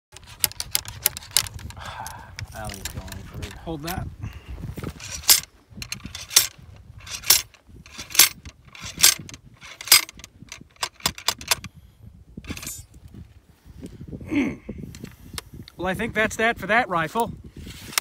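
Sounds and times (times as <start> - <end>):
ramrod scraping and clanking: 0.1 - 1.8, 2.4 - 4.1, 4.8 - 11.7, 12.4 - 13.2, 17.6 - 18.0
short rattle: 4.8 - 11.7, 12.4 - 13.0.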